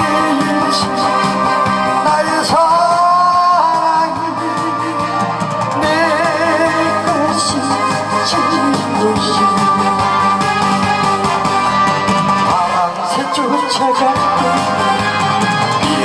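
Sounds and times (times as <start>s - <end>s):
man singing into a microphone: 0.0s - 10.4s, 12.4s - 16.0s
instrumental accompaniment: 0.0s - 16.0s.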